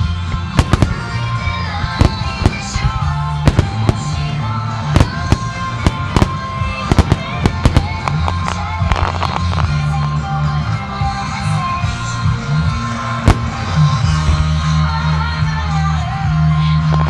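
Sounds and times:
music with steady bass: 0.0 - 17.0
fireworks bangs: 0.4 - 10.2, 13.2 - 14.4.

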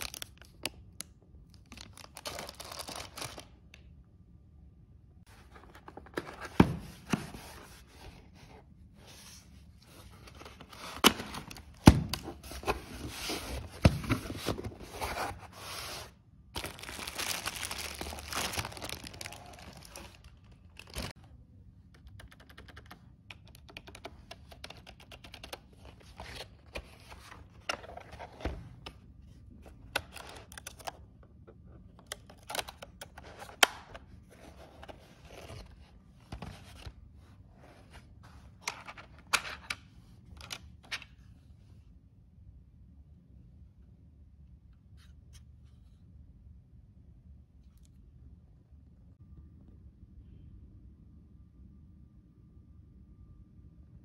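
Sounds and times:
plastic wrapping crinkling and tearing: 0.0 - 0.8, 1.5 - 3.5, 16.6 - 21.1.

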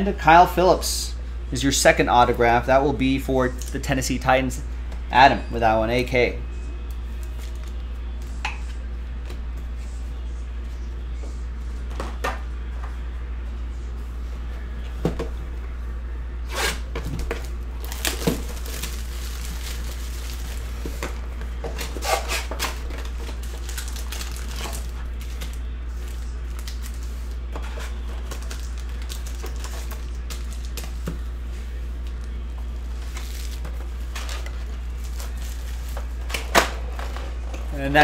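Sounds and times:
low steady hum: 0.0 - 38.0
foil packs rustling and crinkling: 17.4 - 21.1, 21.8 - 31.0, 32.9 - 36.4.

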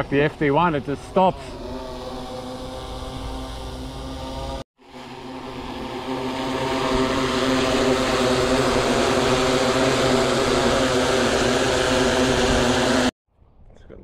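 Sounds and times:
drone propellers buzzing: 0.0 - 13.1.

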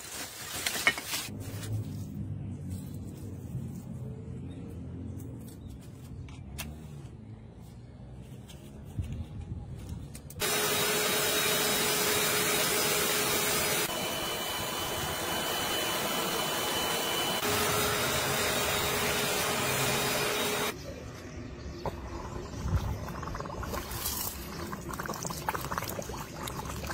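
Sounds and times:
electric air blower running: 10.4 - 20.8.

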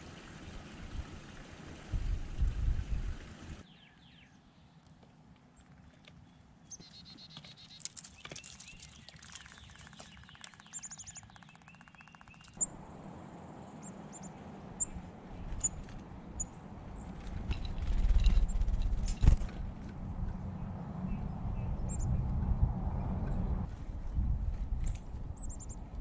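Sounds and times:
birds chirping: 5.6 - 12.8, 13.6 - 19.4
bird rattling trill: 7.2 - 12.7, 15.5 - 16.5, 17.2 - 19.5
sharp high bird chip notes: 9.8 - 12.7.

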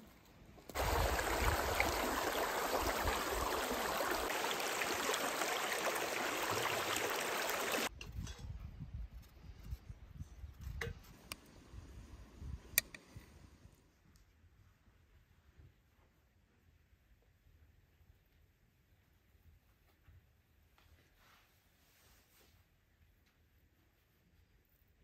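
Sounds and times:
shallow stream flowing: 0.7 - 7.9.

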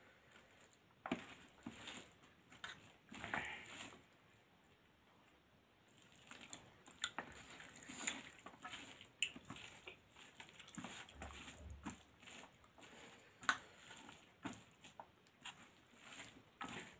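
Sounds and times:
fingers squishing food: 5.9 - 16.9.

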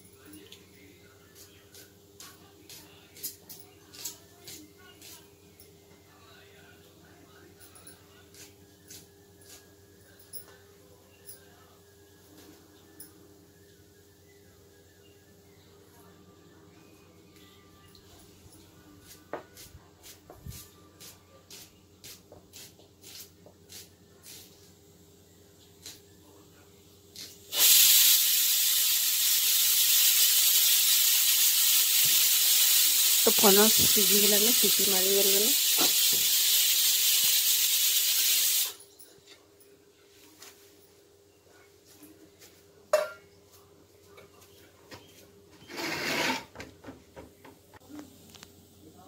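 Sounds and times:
pressure cooker steam hiss: 27.2 - 38.8
short rushing hiss: 35.5 - 38.8
metal bowl clanking on concrete: 42.9 - 43.3.

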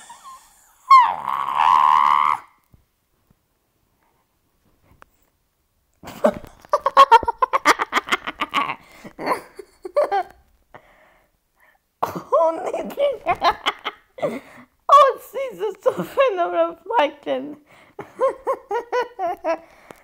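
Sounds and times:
person laughing hard: 6.0 - 10.4, 18.0 - 19.6.

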